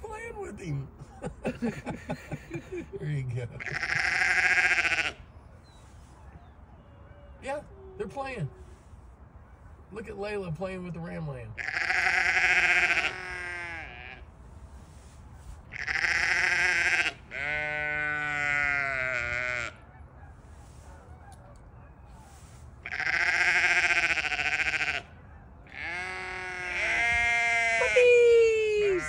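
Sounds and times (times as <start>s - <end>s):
sheep bleating: 3.6s - 5.2s, 11.6s - 14.3s, 15.7s - 19.8s, 22.8s - 25.1s, 25.7s - 29.0s.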